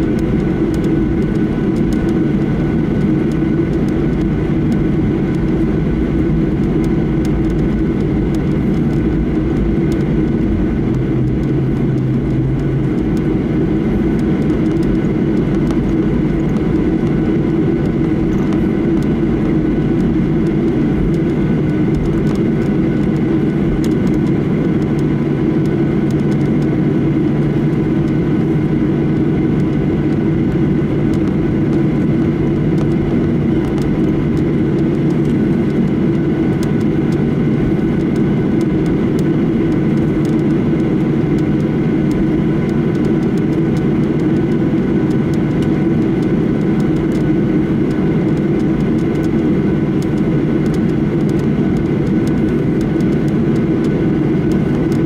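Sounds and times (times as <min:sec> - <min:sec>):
short low hum: 0:00.0 - 0:25.4
faint whine tones: 0:00.0 - 0:55.0
jet engine cabin drone: 0:00.0 - 0:55.0.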